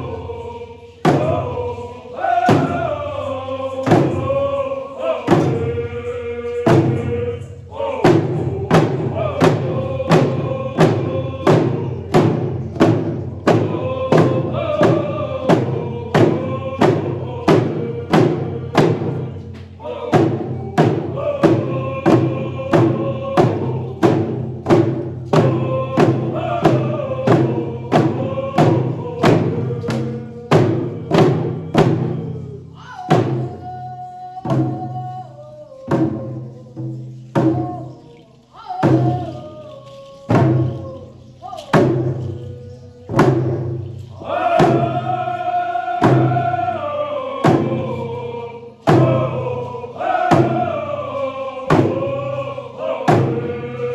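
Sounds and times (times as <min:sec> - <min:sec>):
group singing in unison: 0:00.0 - 0:53.9
hand drums beating: 0:08.0 - 0:38.0, 0:38.8 - 0:46.7, 0:48.8 - 0:50.8, 0:51.6 - 0:52.3.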